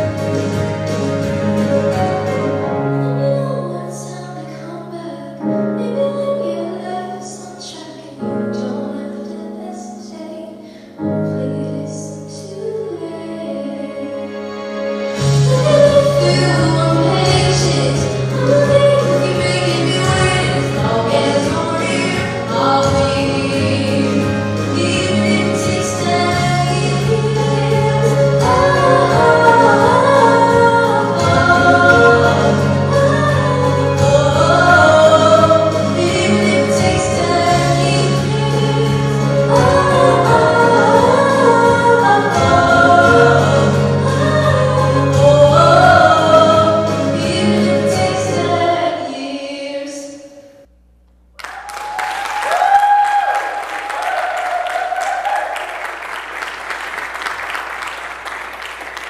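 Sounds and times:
instrumental accompaniment: 0:00.0 - 0:04.4, 0:12.6 - 0:48.8
woman singing pop song: 0:02.9 - 0:14.3, 0:15.2 - 0:50.3
audience applauding: 0:51.4 - 0:59.0.

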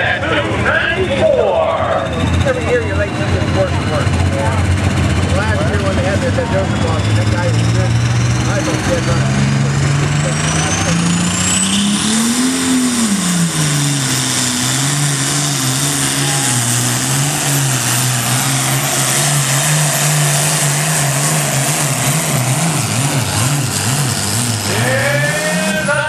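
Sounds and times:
diesel tractor engine under load: 0:00.0 - 0:26.0
turbocharger whistle: 0:10.2 - 0:23.9.

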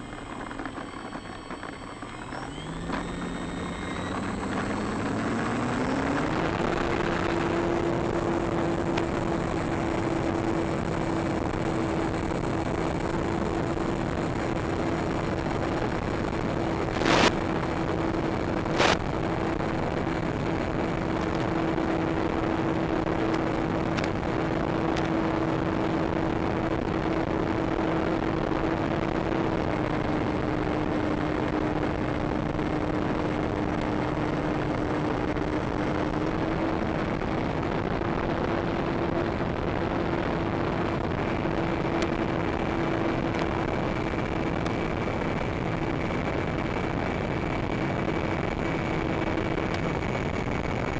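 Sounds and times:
loud bursts of noise: 0:00.0 - 0:14.7
model plane electric motor humming: 0:00.0 - 0:21.8.

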